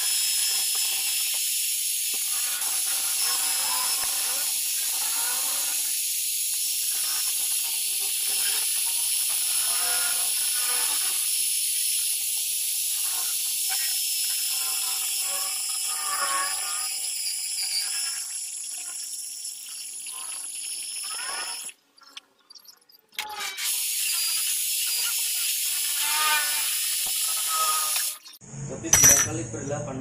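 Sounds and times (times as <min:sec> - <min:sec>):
metal lathe drilling: 0:02.1 - 0:11.9, 0:12.5 - 0:21.7, 0:23.6 - 0:28.4.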